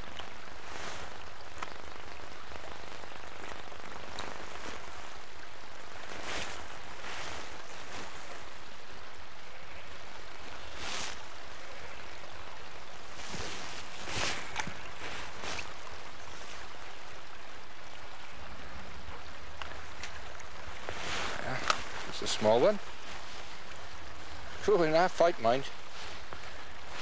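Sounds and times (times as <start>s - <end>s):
rushing water: 0.0s - 27.0s.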